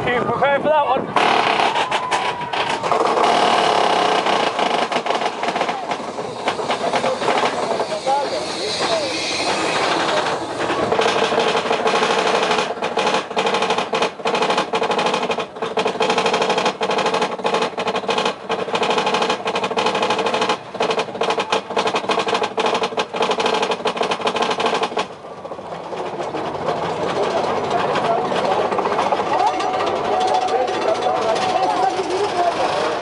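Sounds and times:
steady mechanical drone: 0:00.0 - 0:33.0
train rolling on track: 0:01.1 - 0:33.0
roller coaster chain clattering: 0:01.2 - 0:33.0.

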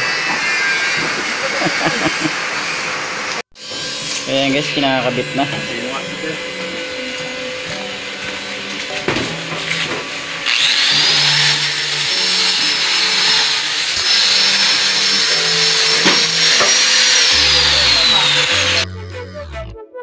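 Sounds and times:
power tool whining: 0:00.0 - 0:18.9
background music: 0:15.5 - 0:20.0.

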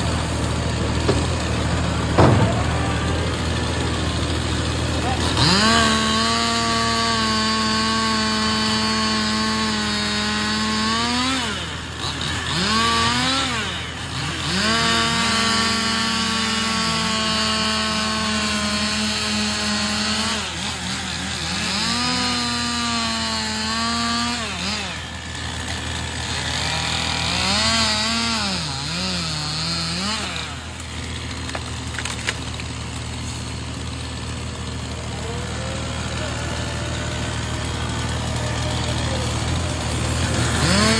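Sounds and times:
truck diesel engine idling: 0:00.0 - 0:05.6, 0:32.5 - 0:40.9
chainsaw cutting wood: 0:00.0 - 0:40.9.

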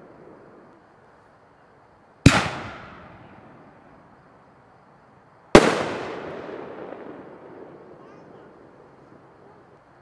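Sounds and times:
firework bangs with echo: 0:02.2 - 0:03.8, 0:05.6 - 0:08.9.

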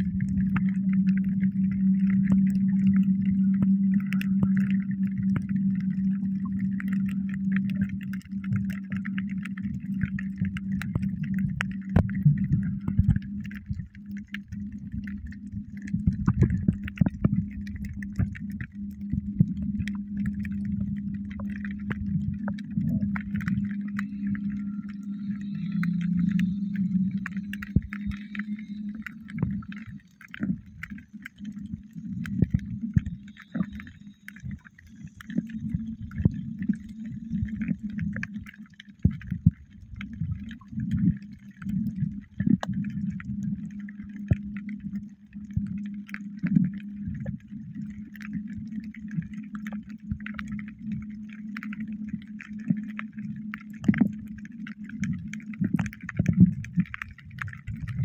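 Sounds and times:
muffled underwater water noise: 0:00.0 - 0:58.0
steady low hum: 0:00.0 - 0:58.0
underwater clicks and gurgles: 0:00.0 - 0:58.0.

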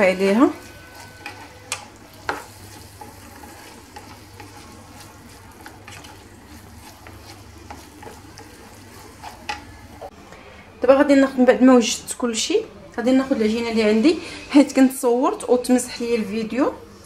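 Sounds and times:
spatula stirring in frying pan: 0:00.0 - 0:10.1
spatula tapping pan: 0:00.0 - 0:10.1
low sizzle of frying: 0:00.0 - 0:17.0.

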